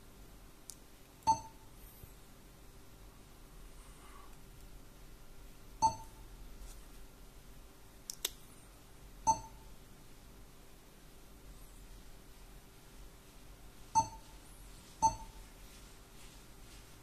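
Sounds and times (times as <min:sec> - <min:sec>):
short electronic beeps: 0:01.3 - 0:01.7, 0:05.8 - 0:06.2, 0:09.3 - 0:09.7, 0:14.0 - 0:14.4, 0:15.0 - 0:15.4
sharp clicks: 0:08.1 - 0:08.4.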